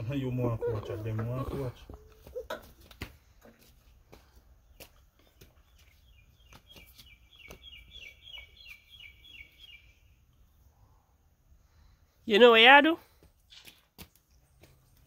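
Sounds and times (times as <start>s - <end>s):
bird chirping: 0.0s - 2.6s, 4.6s - 10.7s.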